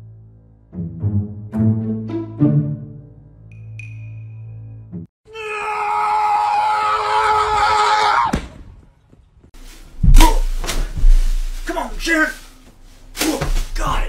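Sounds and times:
loud long scream: 0:05.3 - 0:08.4.

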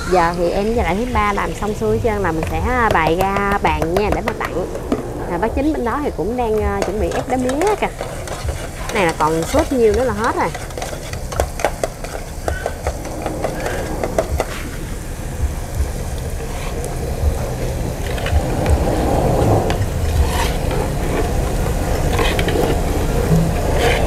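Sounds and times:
low rumble: 0:00.8 - 0:07.5, 0:12.8 - 0:22.1
utensils clicking against pan: 0:06.5 - 0:14.5
spatula scraping a wok: 0:06.7 - 0:15.0, 0:17.9 - 0:24.0.

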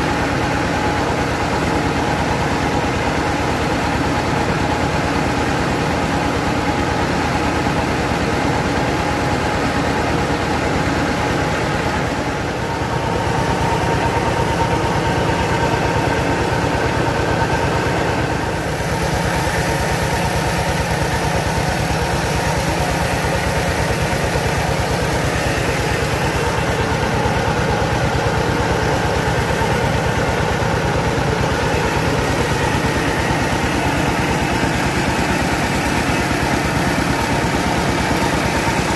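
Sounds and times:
rice mill engine droning: 0:00.0 - 0:38.9
grain running through machine: 0:13.0 - 0:38.9.

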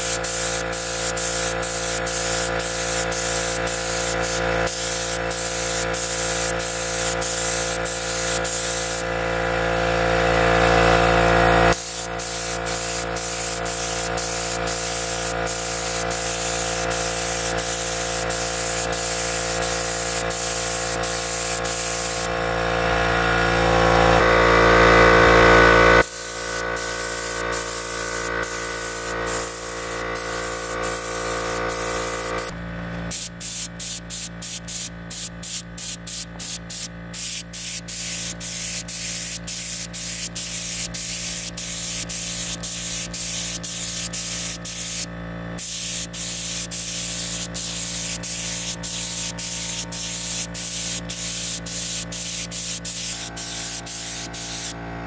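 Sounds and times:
spray gun hissing: 0:00.0 - 0:09.1, 0:11.7 - 0:22.3, 0:26.0 - 0:32.6, 0:33.2 - 0:54.8
motor whine: 0:06.2 - 0:33.1.

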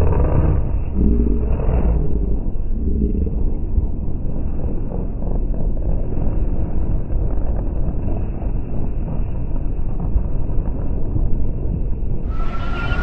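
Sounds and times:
wind buffeting microphone: 0:00.0 - 0:13.0
muffled street traffic: 0:12.3 - 0:13.0.

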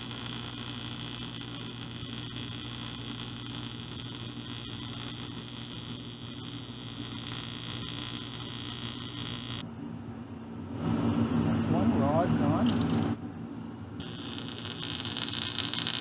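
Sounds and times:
welding arc buzzing hum: 0:00.0 - 0:09.6, 0:14.0 - 0:16.0.

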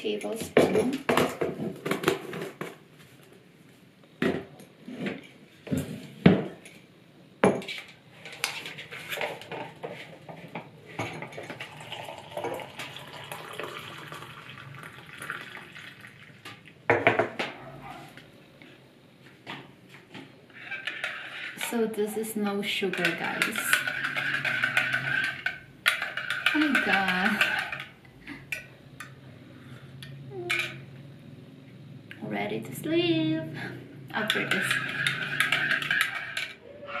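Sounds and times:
water pouring from a kettle: 0:11.6 - 0:16.4.

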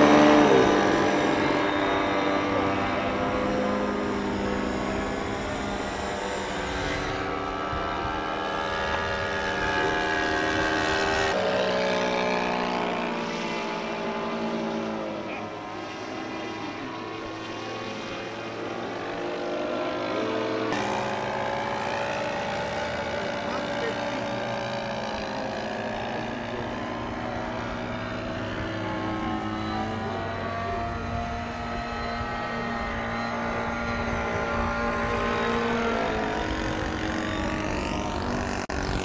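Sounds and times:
model plane engine and propeller: 0:00.0 - 0:39.0.

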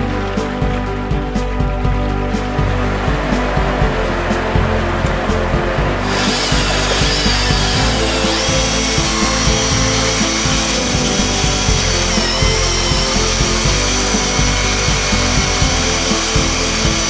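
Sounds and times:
background music: 0:00.0 - 0:17.0
chainsaw cutting through wood: 0:06.0 - 0:17.0.

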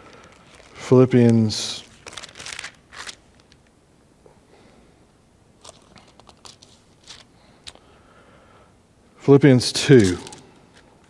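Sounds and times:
paper pages turning: 0:00.1 - 0:03.6, 0:05.6 - 0:07.8, 0:09.9 - 0:10.9.

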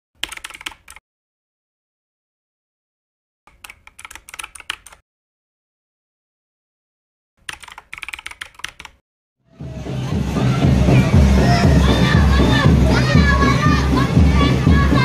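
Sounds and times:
rapid keyboard key clicks: 0:00.2 - 0:01.0, 0:03.5 - 0:05.0, 0:07.4 - 0:09.0.

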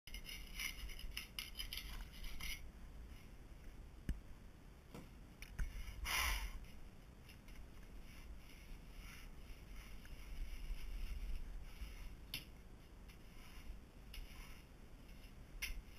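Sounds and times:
scraping on tile floor: 0:00.1 - 0:02.7.

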